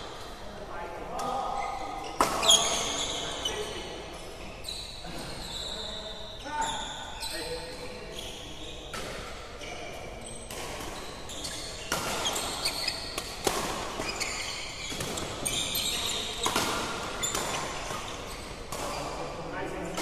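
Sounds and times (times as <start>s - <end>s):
shoes squeaking on court: 1.5s - 19.2s
rackets hitting shuttlecock: 10.4s - 19.2s.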